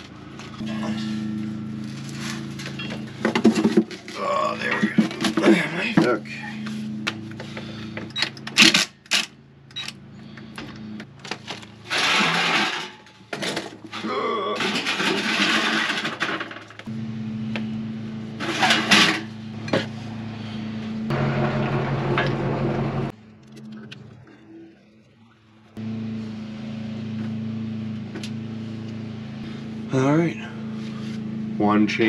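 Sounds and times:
steady low hum: 0.0s - 13.6s, 16.8s - 32.0s
metal parts clinking: 11.9s - 13.9s.

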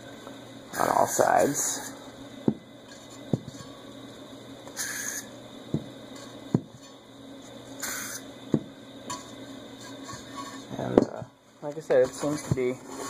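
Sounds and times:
spray bottle hissing: 4.7s - 5.3s, 7.8s - 8.3s.

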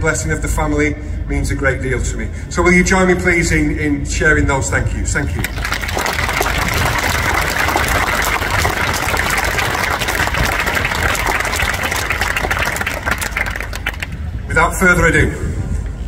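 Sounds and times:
audience applauding: 5.4s - 14.3s.

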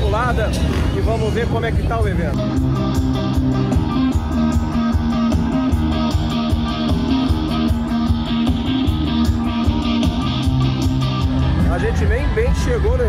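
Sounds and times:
bass guitar: 0.0s - 13.0s
electric guitars: 0.0s - 13.0s
drums with steady beat: 2.4s - 12.1s.

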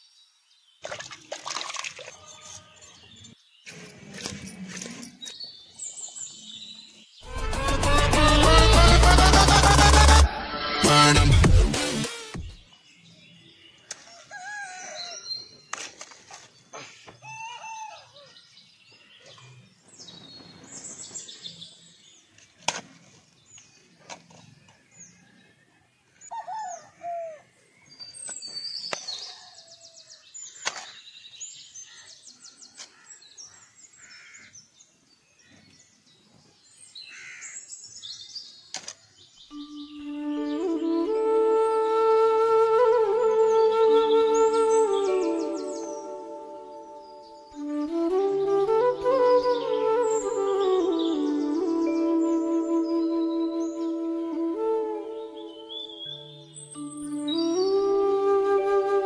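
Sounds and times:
birds calling and chirping: 12.6s - 59.0s.

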